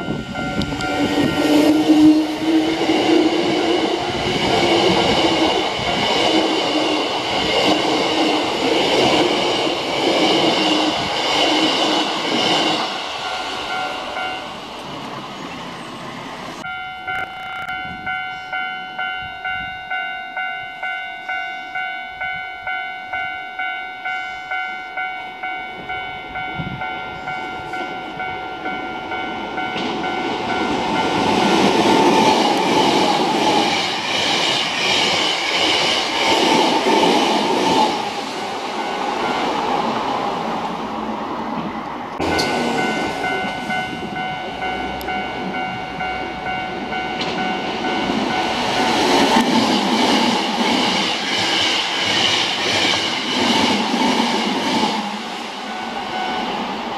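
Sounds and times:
crossing warning bell ringing: 0.0s - 40.5s, 42.2s - 56.9s
train passing: 0.0s - 56.9s
train wheels clattering: 29.6s - 39.8s, 46.8s - 56.6s.

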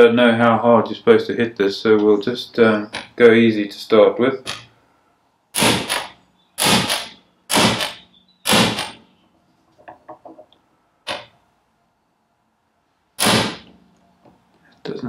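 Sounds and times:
hammer striking metal: 5.6s - 9.0s.

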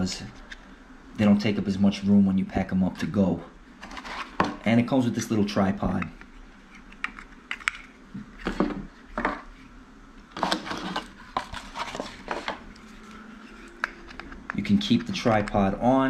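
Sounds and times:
scraping rustle: 10.4s - 14.2s.

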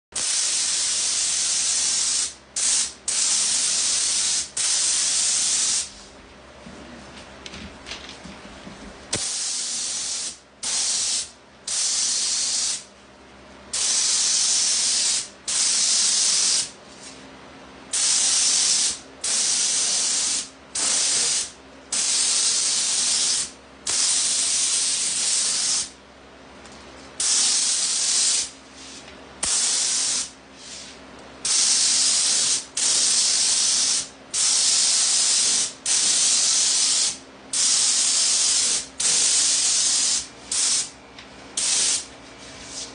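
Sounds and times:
spray gun hissing: 0.2s - 6.0s, 9.1s - 12.8s, 17.9s - 25.9s, 27.2s - 28.5s, 29.4s - 40.9s, 41.6s - 42.0s.

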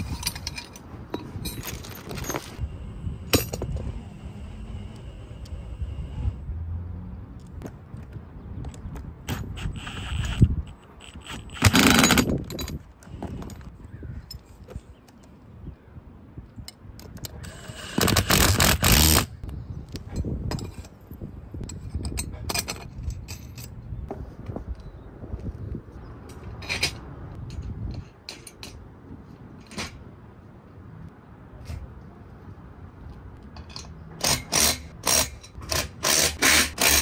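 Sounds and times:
metal hardware clinking: 0.0s - 2.6s.

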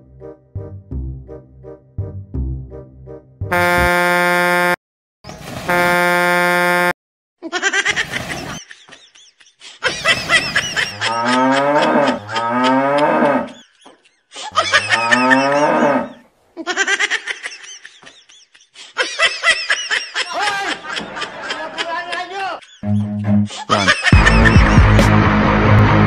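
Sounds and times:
cattle mooing: 11.1s - 13.6s, 14.8s - 16.2s.

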